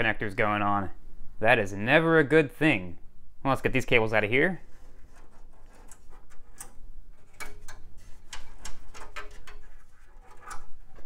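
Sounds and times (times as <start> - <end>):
cables pulled from metal case: 4.6 - 11.0.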